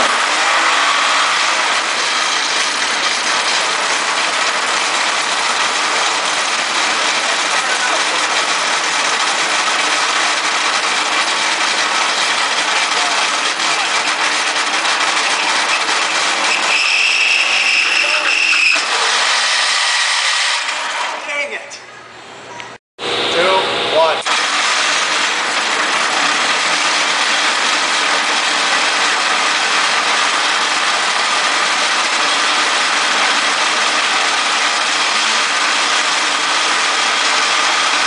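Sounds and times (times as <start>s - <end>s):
metal rod grinding against rod: 14.4s - 20.3s
high squeal: 15.3s - 20.3s.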